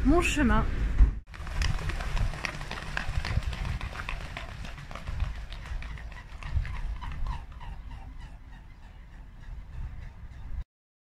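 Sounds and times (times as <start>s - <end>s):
feet slapping water: 1.3s - 8.0s
swans' wings beating: 1.3s - 9.3s.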